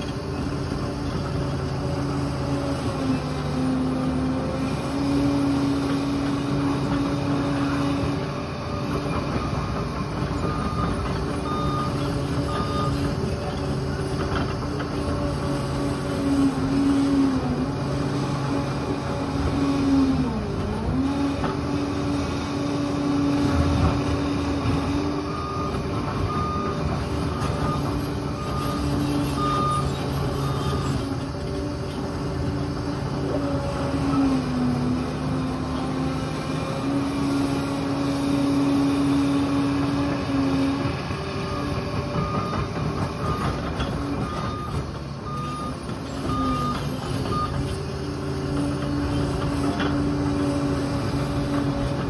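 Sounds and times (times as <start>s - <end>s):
bulldozer diesel engine: 0.0s - 52.0s
reversing alarm beeping: 8.7s - 13.5s, 25.2s - 31.0s, 41.4s - 47.7s.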